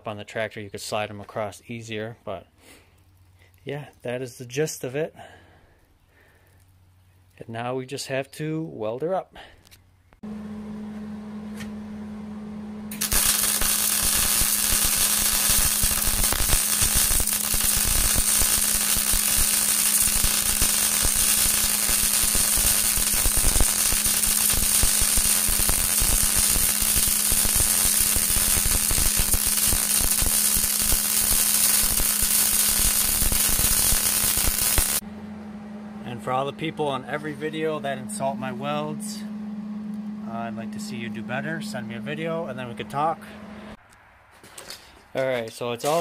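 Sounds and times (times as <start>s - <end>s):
steady hum: 10.2s - 43.8s
welding arc crackle: 12.9s - 35.0s.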